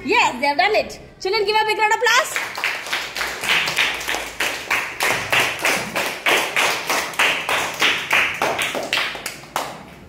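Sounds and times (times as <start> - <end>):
children clapping in unison: 2.3 - 10.0.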